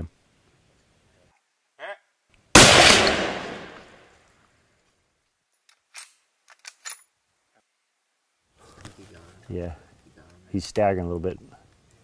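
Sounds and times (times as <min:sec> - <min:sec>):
rifle shot echoing: 0:02.6 - 0:04.0.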